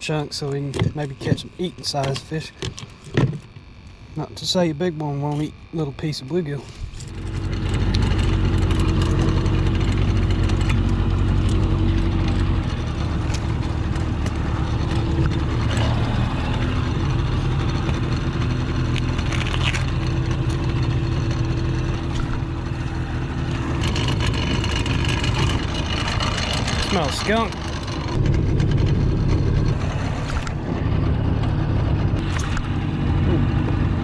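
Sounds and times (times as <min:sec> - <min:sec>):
boat motor running: 0:00.0 - 0:34.0.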